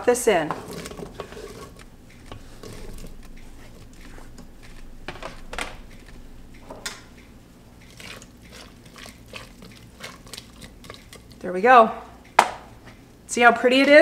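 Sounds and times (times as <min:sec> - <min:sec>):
vegetables scraped off cutting board: 0:00.5 - 0:04.4.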